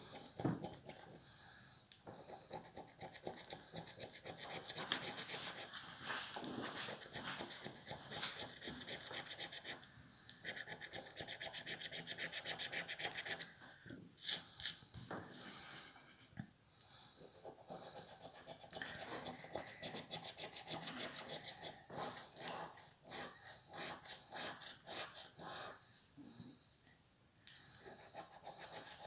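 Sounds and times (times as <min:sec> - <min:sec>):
coin scratching scratch card: 0:06.5 - 0:09.8, 0:10.4 - 0:13.5.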